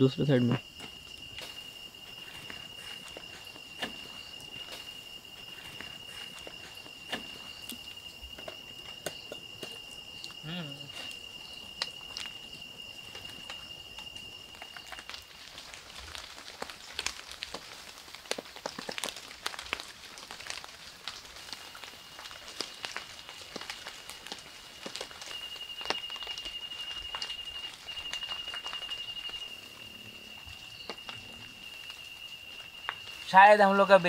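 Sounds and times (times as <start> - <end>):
insect high-pitched trill: 0.0 - 18.0, 19.4 - 34.0.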